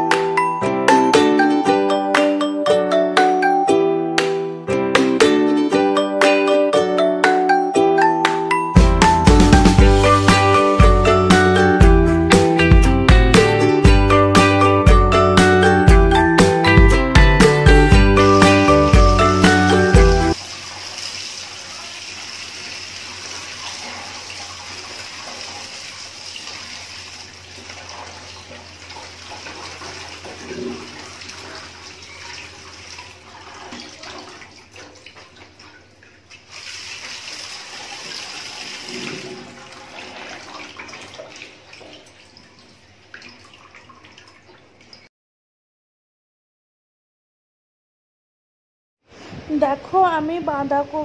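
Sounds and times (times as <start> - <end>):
tap water running into sink: 17.9 - 45.0
hand rinsing cabbage: 18.2 - 44.9.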